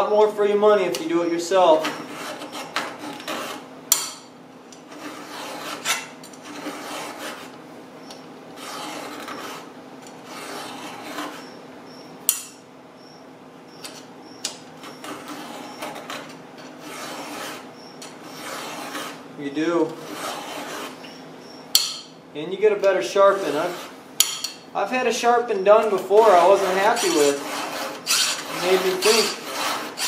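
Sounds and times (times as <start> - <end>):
file rasping on chainsaw chain: 4.9 - 7.5, 8.6 - 9.7, 10.3 - 11.5, 15.0 - 19.2, 20.0 - 21.1, 23.3 - 24.0, 26.1 - 30.0.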